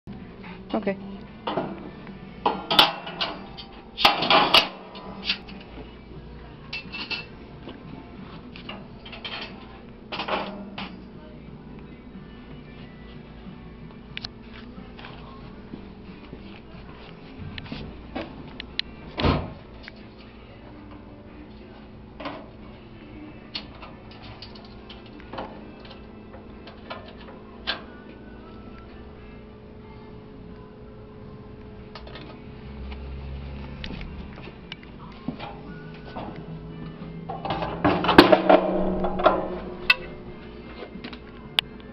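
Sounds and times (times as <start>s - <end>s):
steady low hum: 0.1s - 41.9s
metal grill grates clanking: 2.5s - 5.6s, 37.3s - 40.2s.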